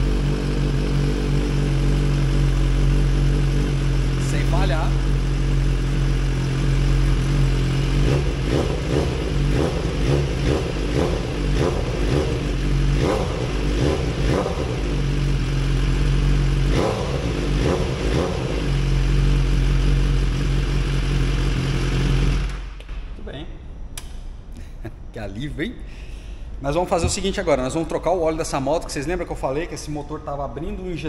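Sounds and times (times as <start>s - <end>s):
motorcycle engine idling: 0.0s - 22.7s.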